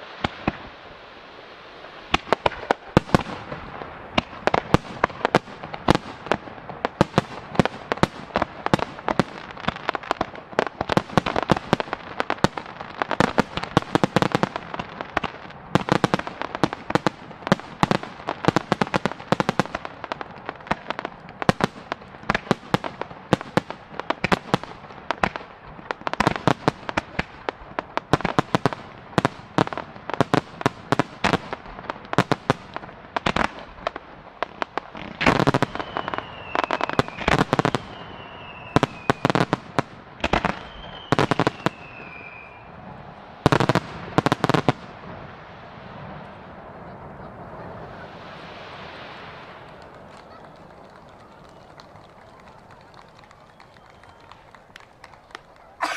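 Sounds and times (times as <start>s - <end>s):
firework bursts and crackling: 0.0s - 55.9s
falling firework whistles: 35.2s - 39.6s, 40.2s - 42.8s, 47.9s - 55.9s.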